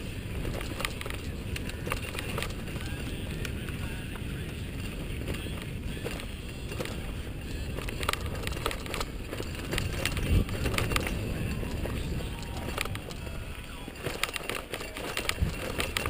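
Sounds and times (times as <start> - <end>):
bike clicks and rattles: 0.0 - 16.0
bike hard jolt: 0.0 - 16.0
tyres rumbling on dirt: 0.0 - 16.0.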